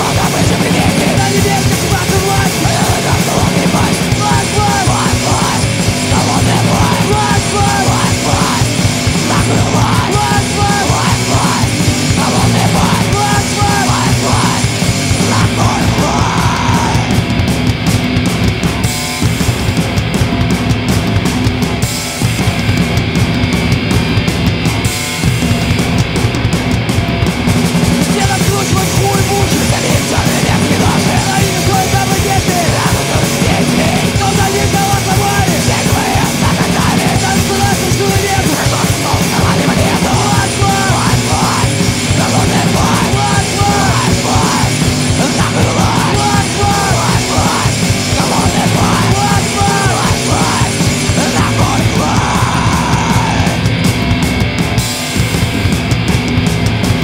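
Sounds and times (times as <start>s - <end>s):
shouted vocals: 0.0s - 17.3s, 28.0s - 53.9s
heavy punk-metal rock music: 0.0s - 57.0s.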